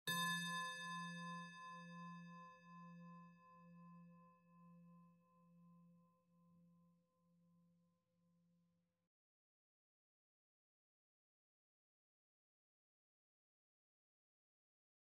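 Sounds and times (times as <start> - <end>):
singing bowl ringing: 0.1 - 4.1.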